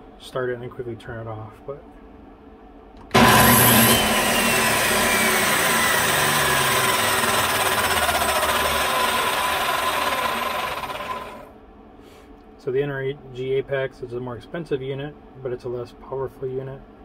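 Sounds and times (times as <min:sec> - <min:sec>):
circular saw motor whine: 0:03.1 - 0:11.5.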